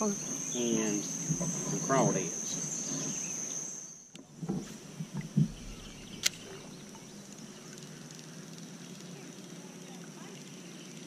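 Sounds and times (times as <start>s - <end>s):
paddle knocking and splashing: 4.2s - 7.8s
sharp click: 5.7s - 6.6s.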